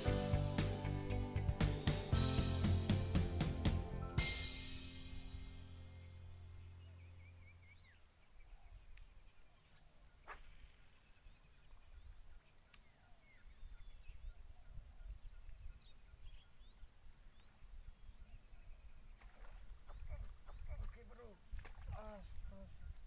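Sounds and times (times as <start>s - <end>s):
bird chirps: 5.8s - 19.1s
insects trilling: 6.0s - 23.0s.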